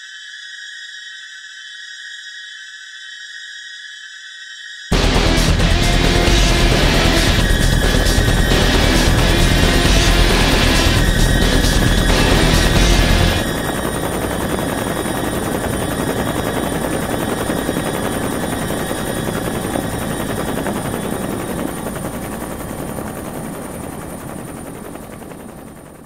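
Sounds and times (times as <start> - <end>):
heavy bass: 4.9 - 13.5
dense rapid rattling: 4.9 - 16.3.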